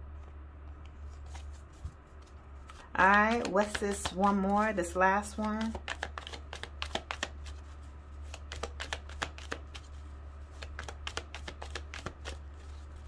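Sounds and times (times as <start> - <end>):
steady low hum: 0.0 - 13.0
cards being shuffled: 0.8 - 13.0.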